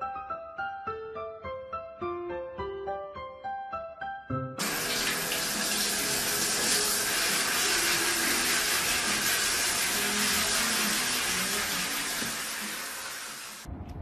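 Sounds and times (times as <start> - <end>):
water running in a tub: 4.6 - 13.7.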